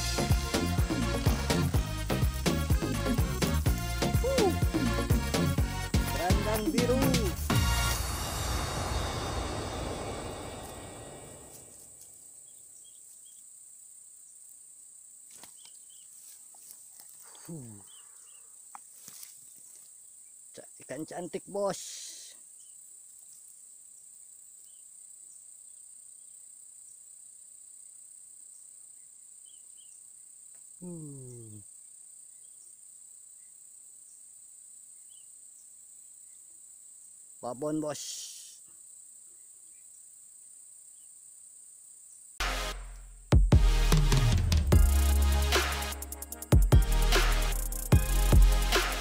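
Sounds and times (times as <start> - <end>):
background music: 0.0 - 11.5, 42.4 - 49.0
man's short vocal sound: 4.2 - 5.0, 17.3 - 18.0, 30.8 - 31.6
insects shrilling: 15.2 - 25.1, 37.3 - 42.4
high-pitched insect drone: 30.8 - 31.6.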